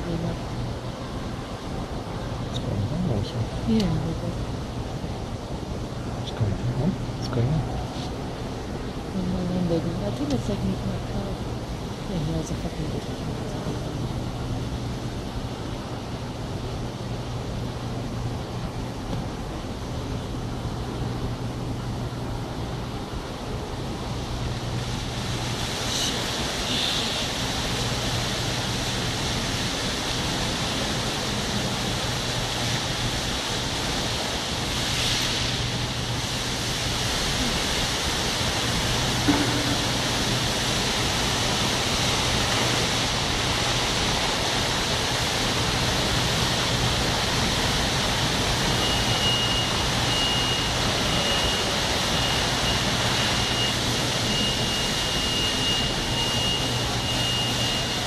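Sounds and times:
fountain water splashing: 0:08.8 - 0:17.6, 0:22.6 - 0:58.0.

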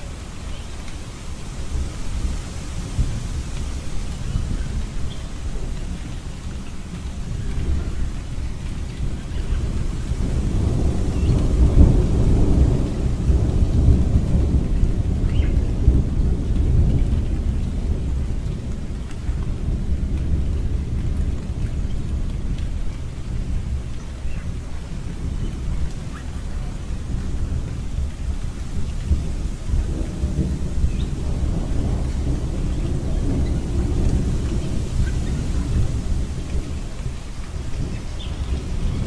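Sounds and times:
rolling rumble of thunder: 0:00.0 - 0:39.0
steady rain: 0:00.0 - 0:39.0.

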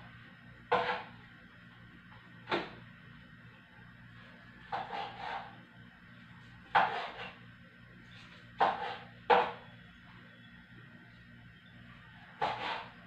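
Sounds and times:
knife slicing on cutting board: 0:04.7 - 0:05.5, 0:06.8 - 0:07.4, 0:08.6 - 0:09.1.

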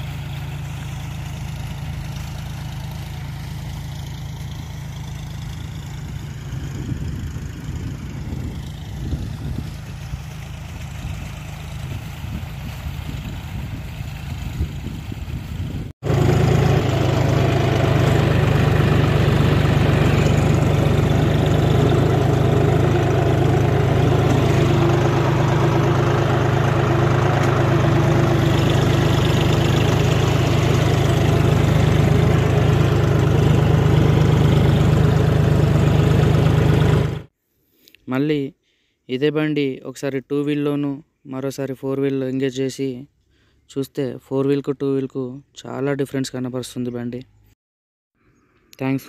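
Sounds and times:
tractor diesel engine running: 0:00.0 - 0:37.3.

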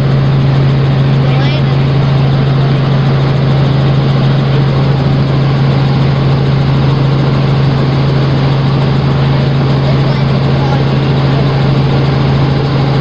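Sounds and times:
helicopter engine and rotor drone: 0:00.0 - 0:13.0.

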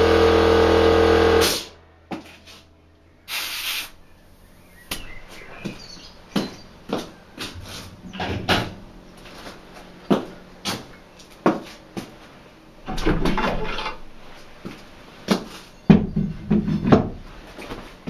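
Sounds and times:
air compressor humming: 0:00.0 - 0:01.8, 0:02.4 - 0:13.0
air hissing from tire valve: 0:03.3 - 0:04.0.

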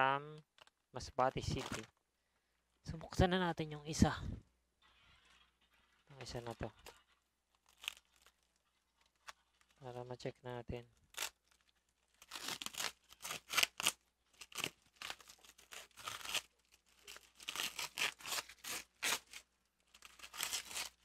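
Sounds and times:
packing tape ripping off parcel: 0:04.9 - 0:09.8, 0:11.0 - 0:21.0.

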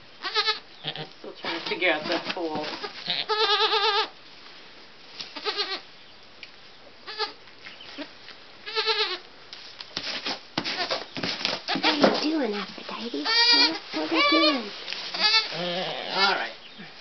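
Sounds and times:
goat bleating: 0:00.2 - 0:04.2, 0:05.4 - 0:05.9, 0:07.0 - 0:07.4, 0:08.0 - 0:09.3, 0:11.7 - 0:16.6
rustling and knocks in straw: 0:01.4 - 0:03.2, 0:04.4 - 0:05.4, 0:09.5 - 0:16.3.

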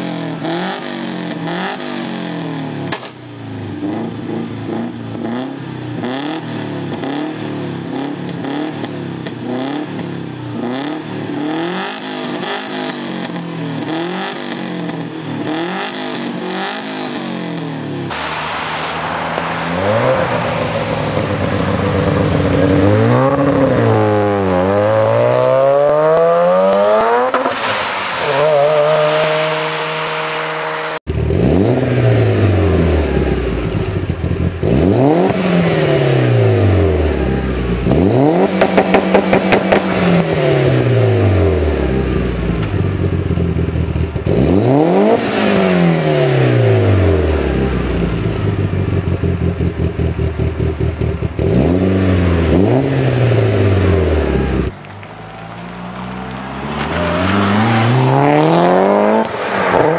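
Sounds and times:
turbocharged car engine revving: 0:00.0 - 0:03.0, 0:03.7 - 0:59.9
rotary engine revving in drive-by: 0:03.8 - 0:59.9.

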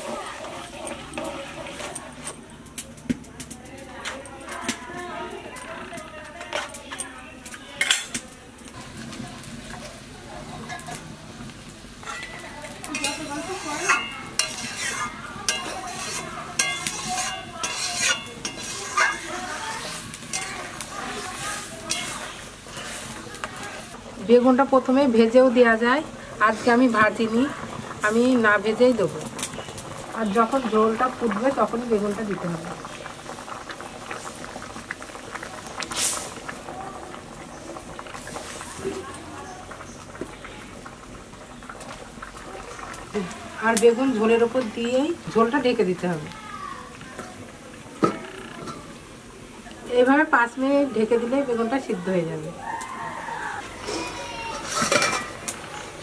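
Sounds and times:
curry bubbling at a boil: 0:00.0 - 0:56.0
spatula scraping through liquid: 0:12.9 - 0:24.0
spatula clinking against metal pan: 0:13.8 - 0:19.4
splash into boiling liquid: 0:31.0 - 0:40.6.

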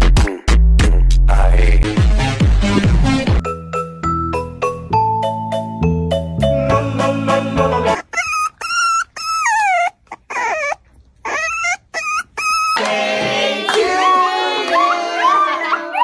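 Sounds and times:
people singing: 0:06.5 - 0:08.0, 0:12.8 - 0:16.0
puppy whining: 0:07.7 - 0:13.0
dog howling: 0:13.7 - 0:16.0.

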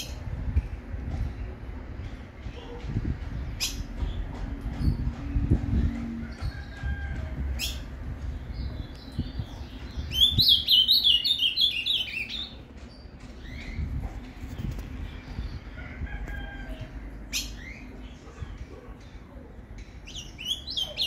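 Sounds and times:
bird singing: 0:07.6 - 0:13.9, 0:17.2 - 0:21.0.

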